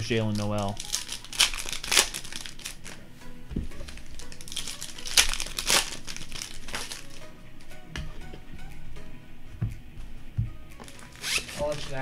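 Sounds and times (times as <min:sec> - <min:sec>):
plastic wrappers crinkling and tearing: 0:00.0 - 0:03.0, 0:03.8 - 0:07.2, 0:10.8 - 0:12.0.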